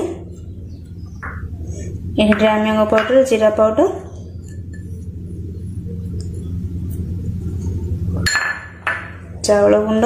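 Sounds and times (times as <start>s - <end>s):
steady low hum: 0.0s - 10.0s
metal bowls clinking: 4.2s - 5.1s, 7.5s - 10.0s.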